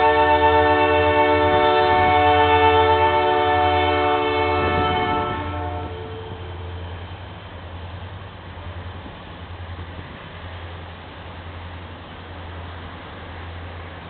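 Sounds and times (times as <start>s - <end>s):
locomotive air horn: 0.0s - 6.8s
passing train rumble: 0.0s - 14.0s.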